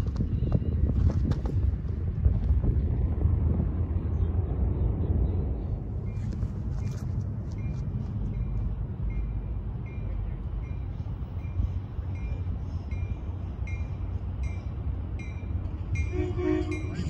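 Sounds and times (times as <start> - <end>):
low train rumble: 0.0 - 17.0
crossing warning bell dinging: 7.5 - 17.0.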